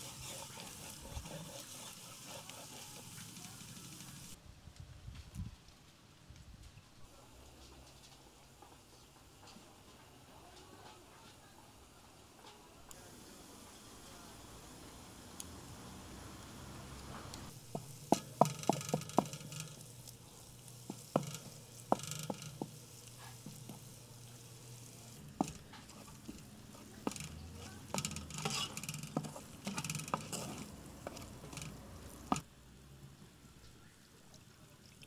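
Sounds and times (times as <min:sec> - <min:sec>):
wooden spatula scraping pan: 0:00.0 - 0:04.3, 0:17.5 - 0:32.4
hot oil sizzling: 0:00.0 - 0:04.4, 0:12.9 - 0:32.7.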